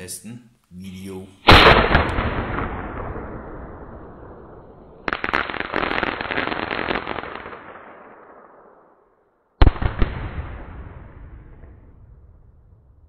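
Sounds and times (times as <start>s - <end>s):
fireworks bangs: 1.4s - 8.8s, 9.6s - 13.0s
fireworks crackling pops: 1.5s - 3.4s, 4.8s - 8.4s, 9.6s - 11.9s.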